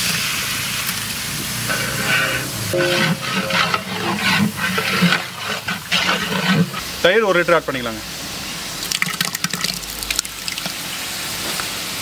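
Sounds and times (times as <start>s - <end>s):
oil sizzling in a pot: 0.0s - 12.0s
metal ladle scraping a pot: 1.6s - 7.0s.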